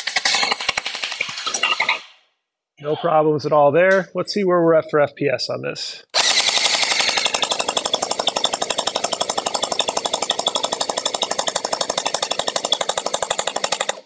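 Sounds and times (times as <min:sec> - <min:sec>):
gel blaster firing full-auto: 0:00.0 - 0:01.5, 0:06.2 - 0:14.0.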